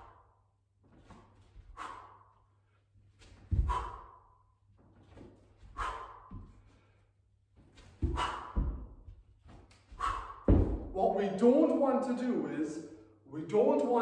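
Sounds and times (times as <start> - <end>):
kettlebell thud: 10.1 - 11.0.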